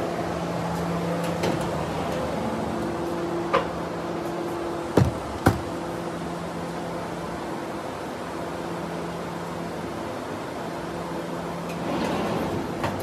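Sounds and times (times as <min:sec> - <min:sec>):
machine knocks: 0:04.9 - 0:05.8.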